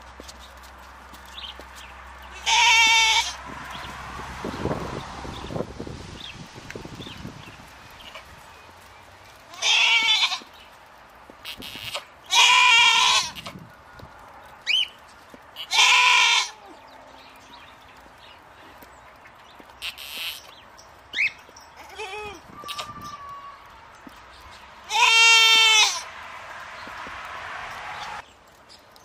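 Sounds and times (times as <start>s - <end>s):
goats bleating: 2.3s - 3.4s, 9.5s - 10.5s, 11.4s - 13.5s, 15.6s - 16.8s, 19.8s - 20.5s, 21.8s - 23.8s, 24.9s - 26.1s.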